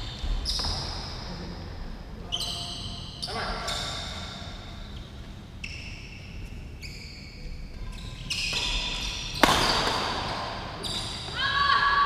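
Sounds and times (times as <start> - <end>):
shoes squeaking on court floor: 0.0 - 1.3, 2.3 - 11.4
racket striking shuttlecock: 8.5 - 10.8.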